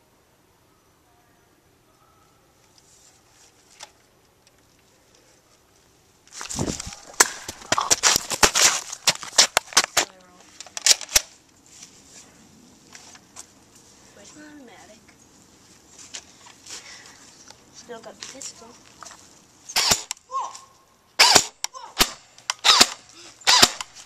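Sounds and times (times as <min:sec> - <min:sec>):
camera handling rustle: 0:02.7 - 0:05.6, 0:06.2 - 0:12.0.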